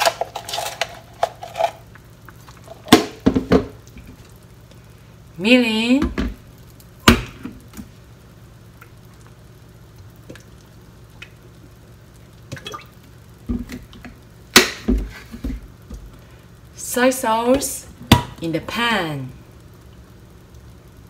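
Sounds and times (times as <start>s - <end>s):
faint liquid drips: 6.4s - 14.4s, 19.3s - 21.0s.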